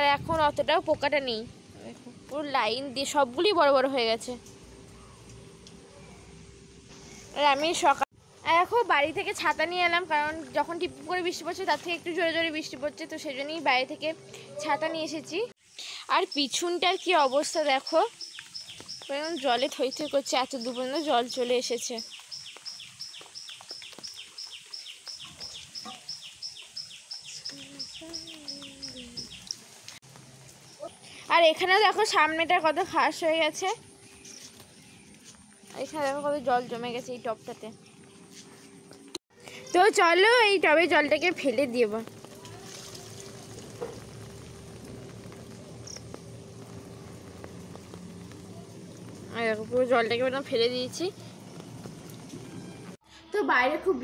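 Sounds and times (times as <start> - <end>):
water trickling and splattering: 8.6 - 37.6, 39.6 - 53.0
light rain taps: 17.4 - 30.7, 41.3 - 53.0
high chirping call: 21.9 - 29.6.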